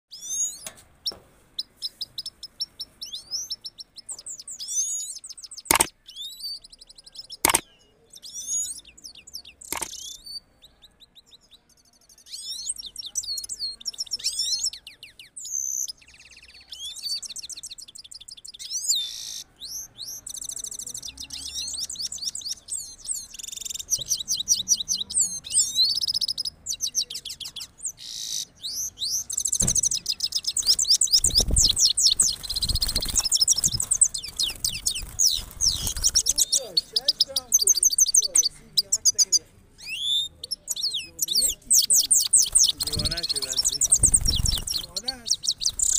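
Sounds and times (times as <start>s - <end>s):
finch twittering song: 0.1s - 45.9s
sharp clicks: 5.6s - 6.0s, 7.4s - 7.7s, 9.6s - 10.1s.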